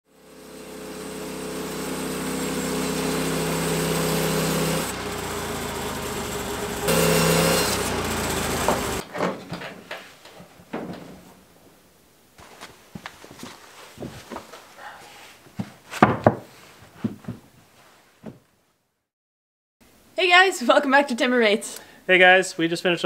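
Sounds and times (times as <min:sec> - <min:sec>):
sawmill engine droning: 0:00.1 - 0:09.0
band blade cutting log: 0:00.5 - 0:05.8, 0:06.8 - 0:09.0
light knocks and rustles: 0:09.1 - 0:11.4, 0:12.4 - 0:14.7.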